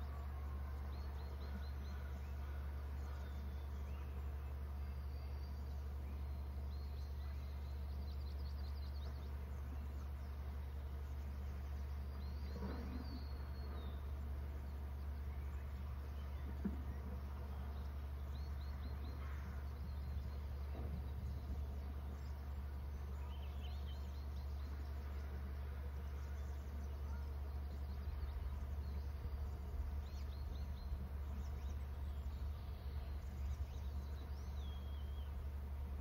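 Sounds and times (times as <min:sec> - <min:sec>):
steady low hum: 0:00.0 - 0:36.0
faint high bird chirps: 0:11.2 - 0:35.5.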